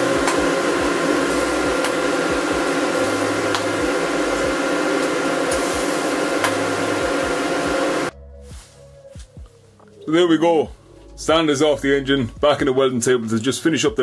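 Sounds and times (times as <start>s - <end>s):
welding equipment whir and hiss: 0.0s - 8.1s.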